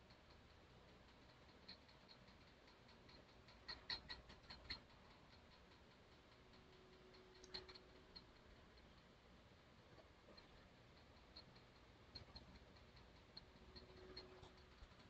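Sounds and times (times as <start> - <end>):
faint even ticking: 0.0 - 15.0
computer mouse clicks: 1.4 - 8.3.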